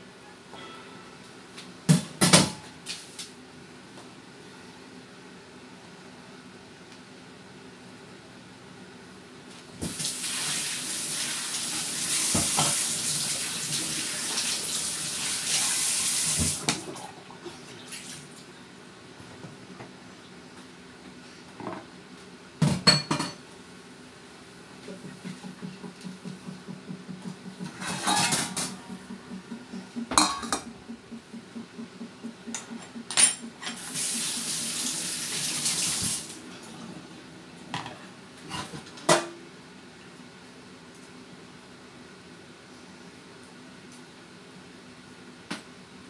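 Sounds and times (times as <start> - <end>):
dishes clattering in sink: 22.6 - 23.4, 27.5 - 29.2, 30.0 - 31.0.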